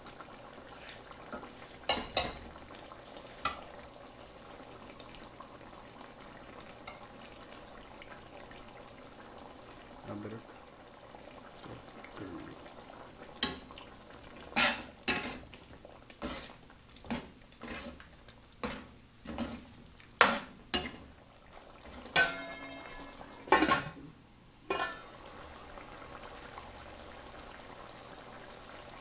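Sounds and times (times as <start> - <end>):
ladle clanking in a metal pot: 22.1 - 24.0, 24.7 - 25.0
steel lid clanking: 22.1 - 24.0, 24.7 - 25.0.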